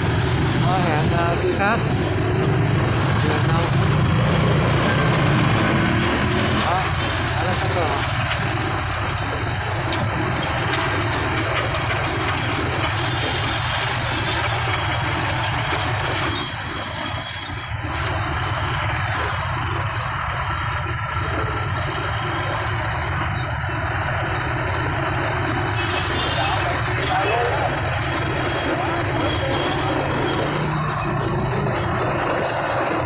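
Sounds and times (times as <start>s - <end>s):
motorbike engine running: 0.0s - 17.1s
traffic engines and road noise: 0.0s - 33.0s.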